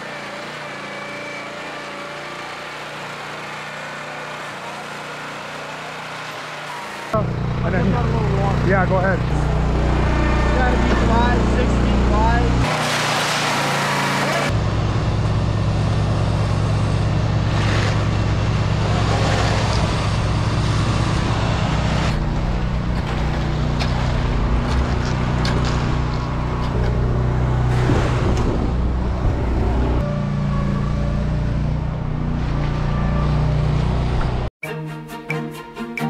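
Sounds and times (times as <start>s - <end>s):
heavy machinery engine running: 0.0s - 34.5s
rakes and shovels scraping concrete: 10.3s - 14.6s, 17.4s - 22.2s, 22.8s - 27.0s.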